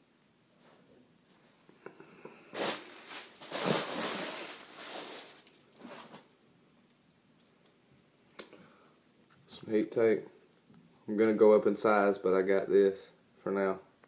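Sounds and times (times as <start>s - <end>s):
hands rustling packing material: 2.5s - 6.3s.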